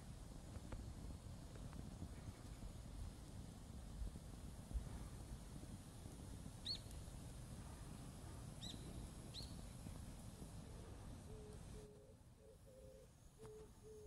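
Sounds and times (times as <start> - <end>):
small bird chirping: 6.6 - 6.9, 8.6 - 10.0.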